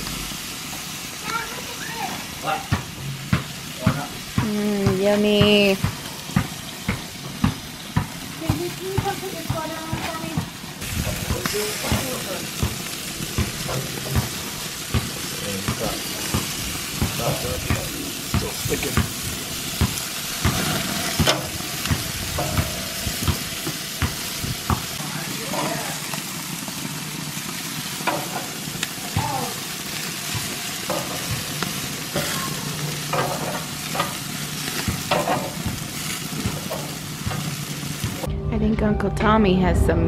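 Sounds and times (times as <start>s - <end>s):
chicken sizzling on a grill: 0.0s - 38.3s.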